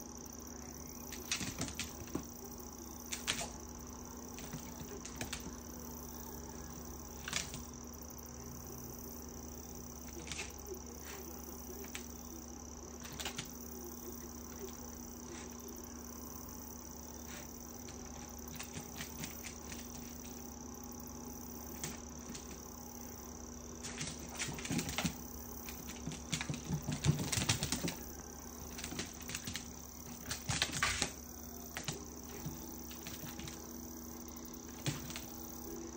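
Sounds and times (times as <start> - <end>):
faint hum: 0.0 - 35.9
dog claws clicking on floor: 1.1 - 2.3, 3.1 - 3.6, 4.4 - 5.6, 13.0 - 13.6, 17.8 - 20.4, 21.8 - 22.6, 23.8 - 33.6, 34.7 - 35.4.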